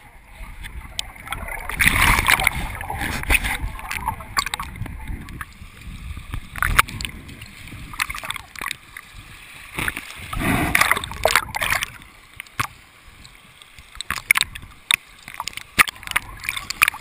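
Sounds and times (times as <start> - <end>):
river water splashing and gurgling: 0.0 - 17.0
rush of water: 0.0 - 17.0
sharp splashes: 9.7 - 12.0.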